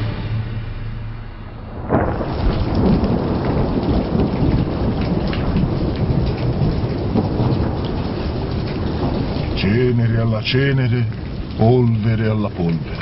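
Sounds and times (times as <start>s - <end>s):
heavy rain: 0.0s - 13.0s
low thunder rumble: 0.0s - 13.0s
loud thunderclap: 1.4s - 11.6s.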